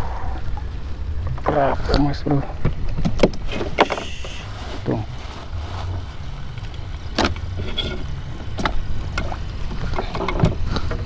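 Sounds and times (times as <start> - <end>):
wind and water rumble: 0.0 - 11.0.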